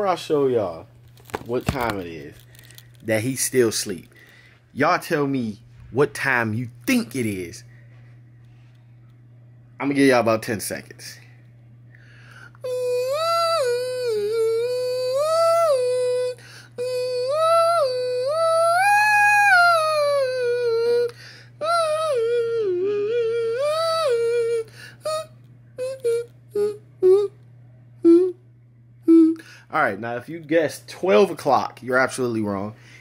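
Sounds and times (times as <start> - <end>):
steady low hum: 0.0 - 33.0
man humming a tune: 12.4 - 29.9.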